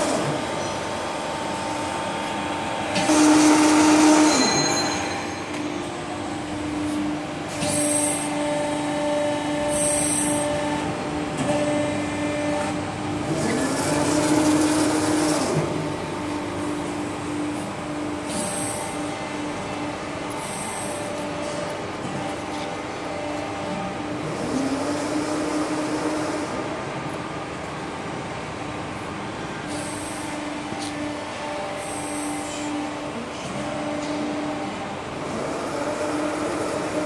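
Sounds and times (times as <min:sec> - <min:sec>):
electric pump motor hum: 0:00.0 - 0:04.7, 0:05.9 - 0:37.0.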